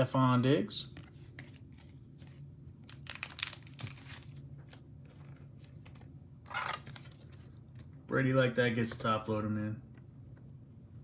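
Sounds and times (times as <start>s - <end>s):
cards rustling: 0.9s - 9.5s.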